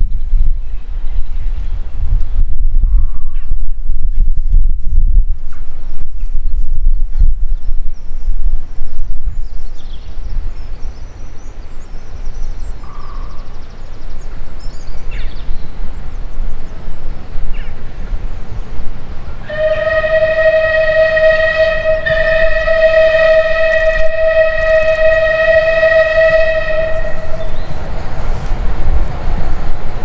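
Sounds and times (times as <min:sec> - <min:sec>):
train rumbling: 0:03.7 - 0:30.0
steam locomotive whistle: 0:19.4 - 0:27.8.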